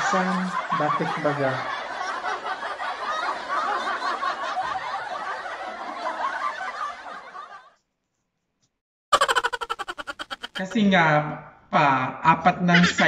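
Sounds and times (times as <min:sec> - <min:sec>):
people laughing: 0:00.0 - 0:07.8, 0:09.2 - 0:10.8, 0:12.7 - 0:13.0.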